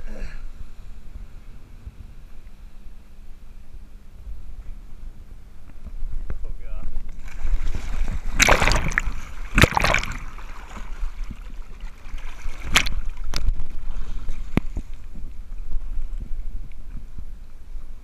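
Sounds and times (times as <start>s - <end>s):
low wind rumble on microphone: 0.0s - 18.0s
legs splashing in sea water: 7.1s - 15.4s.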